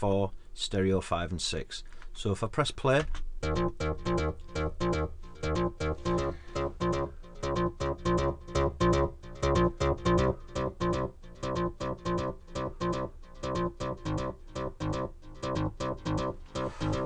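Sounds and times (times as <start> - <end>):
synthesizer sequence of short notes: 3.4 - 17.0.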